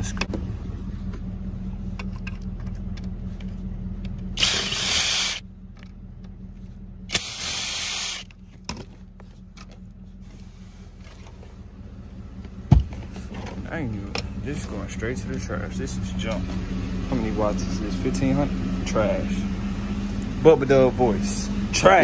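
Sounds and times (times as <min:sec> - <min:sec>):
steady low hum: 0:00.0 - 0:22.0
power drill backing out screws: 0:04.4 - 0:05.4.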